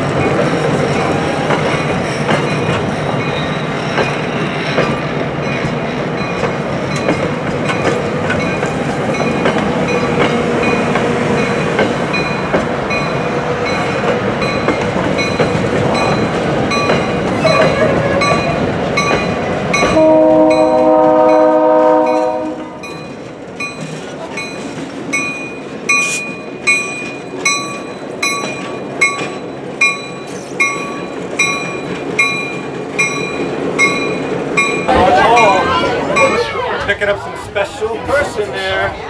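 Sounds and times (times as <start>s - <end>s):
train wheels rumbling and clattering: 0.0s - 39.0s
train horn blast: 19.8s - 22.9s.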